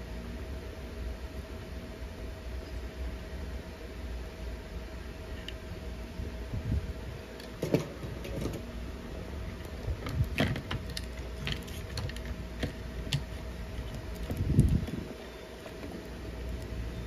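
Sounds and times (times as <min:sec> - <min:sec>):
faint steady hum: 0:00.0 - 0:17.0
clicks and rattles of handled parts: 0:09.6 - 0:15.0.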